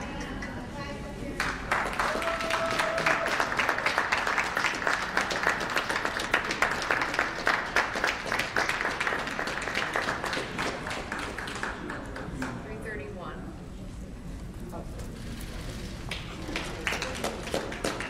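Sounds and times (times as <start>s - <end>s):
audience applauding: 1.4s - 12.6s, 15.8s - 18.0s.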